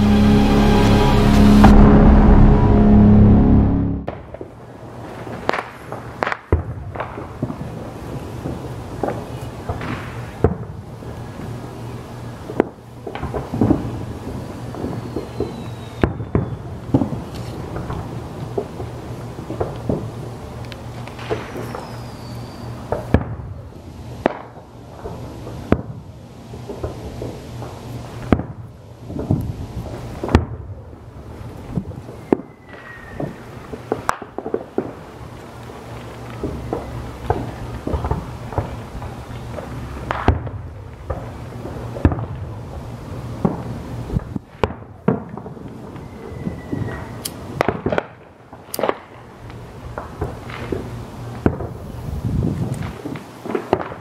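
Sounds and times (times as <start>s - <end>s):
low steady hum: 0.0s - 4.2s.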